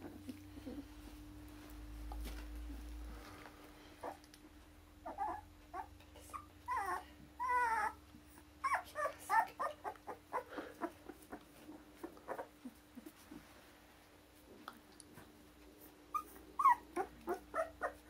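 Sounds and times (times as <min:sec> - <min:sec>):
puppies whining: 0:05.0 - 0:11.4, 0:12.0 - 0:13.2, 0:15.8 - 0:18.0
puppies yipping: 0:05.0 - 0:11.4, 0:16.1 - 0:18.0.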